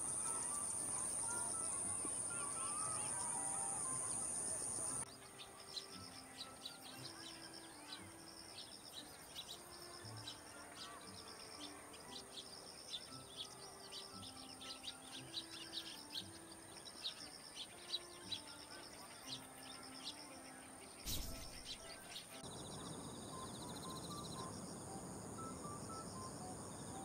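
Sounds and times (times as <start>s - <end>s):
thin steady high tone: 0.0s - 5.0s, 22.4s - 27.0s
sparrows chirping: 0.0s - 27.0s.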